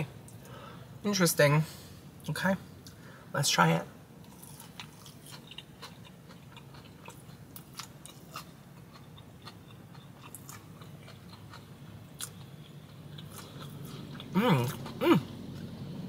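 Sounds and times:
person chewing crunchy food: 4.2 - 15.8.

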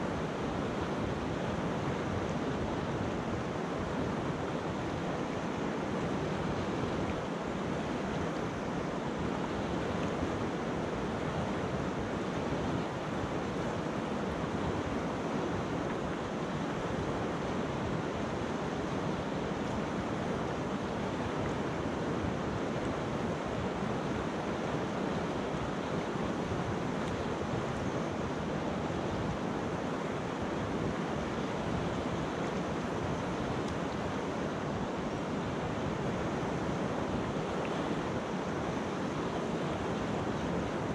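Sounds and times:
river water rushing over stones: 0.0 - 40.9.

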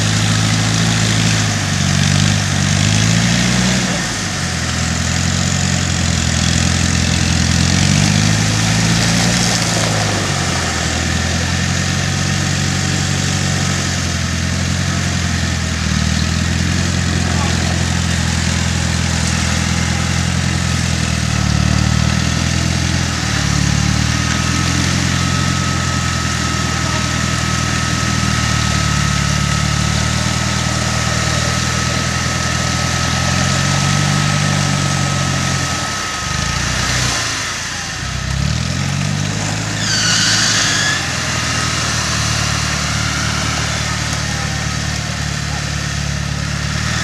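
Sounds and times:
engines idling unevenly: 0.0 - 47.0
thin whine: 3.8 - 47.0
high squeaks: 39.6 - 44.0.

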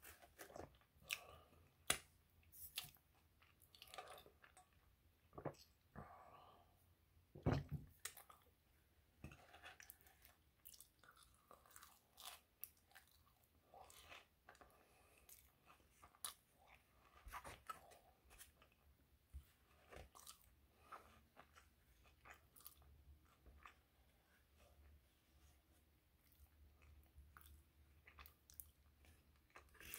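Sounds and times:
chewing with crunches: 0.0 - 4.9, 9.3 - 18.8, 19.6 - 24.8, 26.2 - 29.9.

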